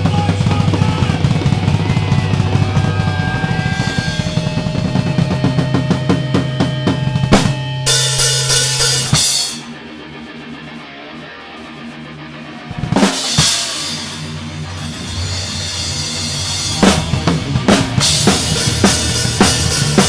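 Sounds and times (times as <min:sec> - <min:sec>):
fast drum beat: 0:00.0 - 0:09.7, 0:12.7 - 0:20.0
low guitar and bass notes: 0:00.0 - 0:20.0.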